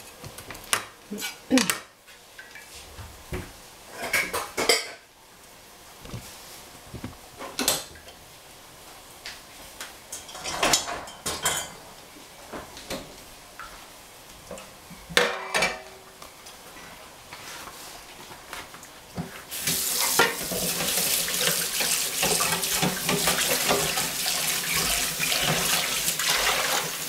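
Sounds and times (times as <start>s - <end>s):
utensils and dishes clattering: 3.9s - 5.1s, 10.1s - 11.8s, 14.5s - 16.0s, 19.6s - 27.0s.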